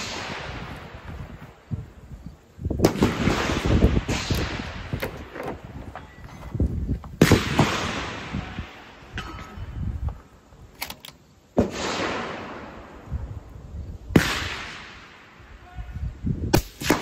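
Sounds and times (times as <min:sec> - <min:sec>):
rifle shots: 0:02.8 - 0:05.3, 0:07.2 - 0:08.7, 0:11.6 - 0:12.8, 0:14.1 - 0:15.1, 0:16.6 - 0:17.0.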